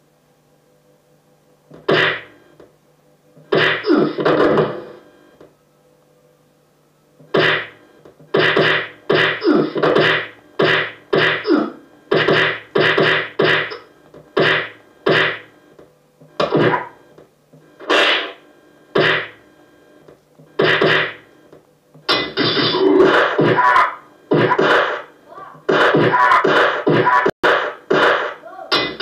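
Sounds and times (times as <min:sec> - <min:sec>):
punch sound effects: 0:01.8 - 0:02.3, 0:03.5 - 0:04.8, 0:07.3 - 0:13.8, 0:14.4 - 0:15.5, 0:17.9 - 0:18.4, 0:19.0 - 0:19.4, 0:20.6 - 0:21.2, 0:22.1 - 0:25.1, 0:25.7 - 0:29.0.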